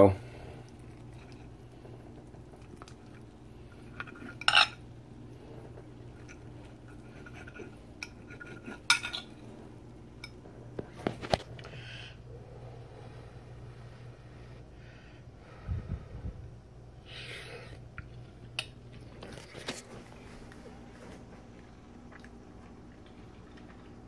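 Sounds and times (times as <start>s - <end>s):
fork clinking on ceramic plate: 7.3s - 9.3s.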